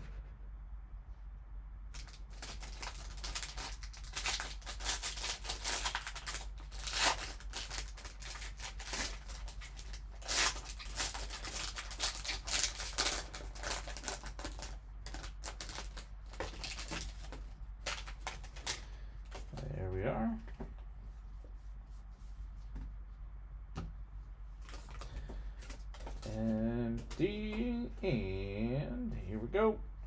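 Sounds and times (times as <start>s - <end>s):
foil wrapper crinkling and tearing: 1.9s - 19.5s, 24.6s - 26.4s.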